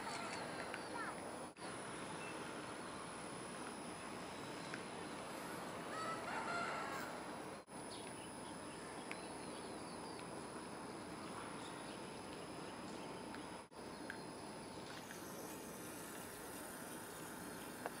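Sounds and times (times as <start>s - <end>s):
outdoor background hiss: 0.0s - 18.0s
rooster crowing: 5.9s - 7.4s.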